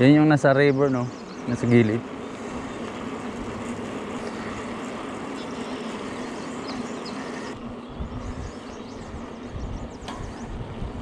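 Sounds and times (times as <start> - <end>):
bicycle tyres rolling: 1.3 - 11.0
wind on microphone: 7.5 - 11.0.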